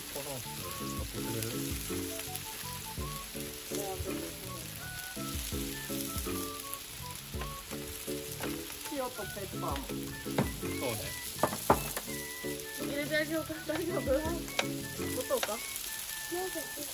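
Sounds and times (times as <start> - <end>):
background music with stepped notes: 0.0 - 16.9
sausages sizzling on a grill: 0.0 - 16.9
fat popping: 5.1 - 13.0, 13.6 - 15.8.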